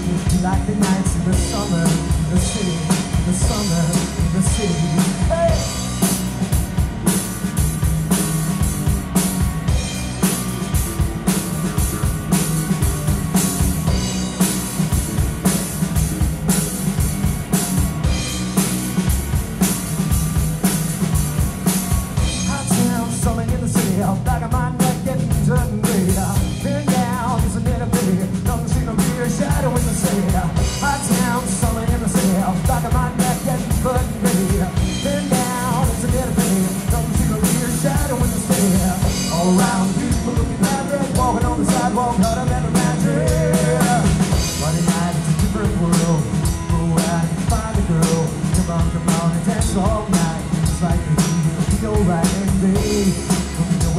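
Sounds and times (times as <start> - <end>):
man singing lead vocal: 0.0 - 5.9, 22.3 - 53.9
rock band playing: 0.0 - 53.9.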